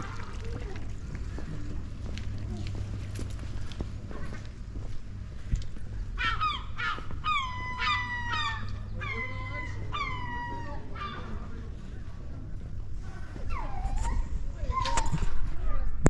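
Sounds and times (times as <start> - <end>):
gull calling: 6.2 - 11.6.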